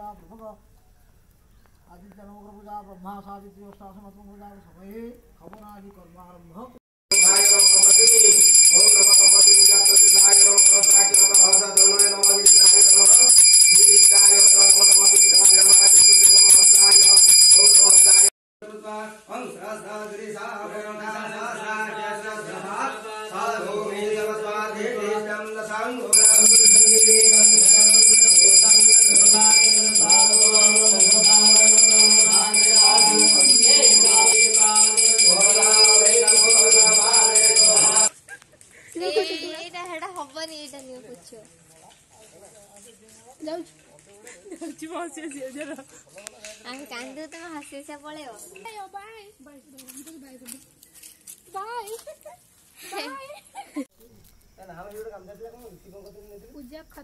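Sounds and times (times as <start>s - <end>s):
hand bell ringing rapidly: 7.1s - 18.3s, 26.2s - 38.1s
voices chanting: 8.8s - 13.4s, 26.2s - 38.1s
long held pitched tone: 26.2s - 38.1s.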